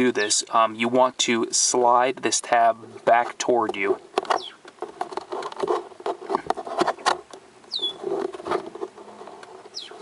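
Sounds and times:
small plastic clicks and rubbing: 3.6 - 10.0
short high falling squeak: 7.7 - 8.0.

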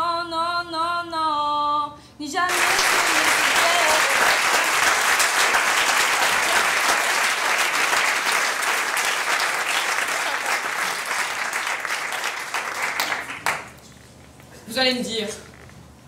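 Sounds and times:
audience applause: 2.5 - 13.8.

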